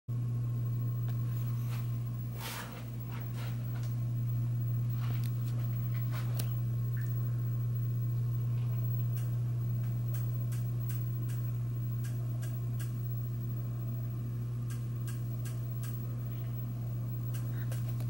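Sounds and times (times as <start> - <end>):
ceiling fan motor hum: 0.1 - 18.0
light clicks and ticks: 9.0 - 13.0, 14.6 - 16.1, 17.3 - 18.0.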